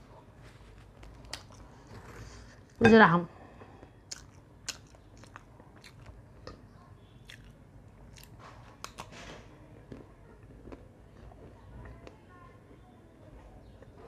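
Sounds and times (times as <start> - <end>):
crunchy food chewing: 4.1 - 6.6, 7.2 - 12.9.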